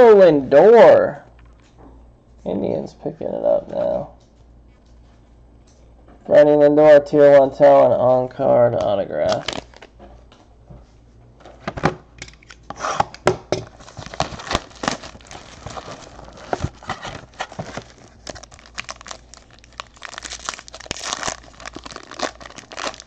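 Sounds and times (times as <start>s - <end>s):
foil wrapper crinkling and tearing: 9.2s - 10.0s, 13.7s - 23.0s.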